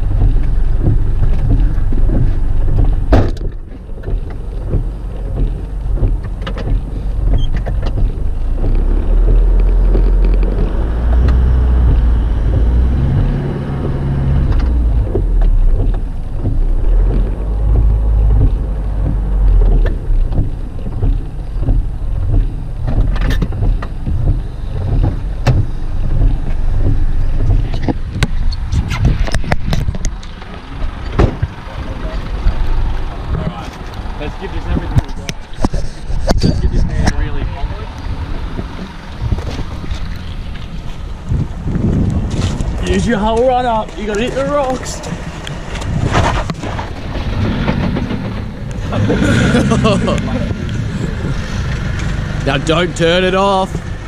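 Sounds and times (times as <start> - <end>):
knocks and rattles: 0.0 - 31.7, 38.3 - 54.0
vehicle engine running loudly: 46.8 - 54.0.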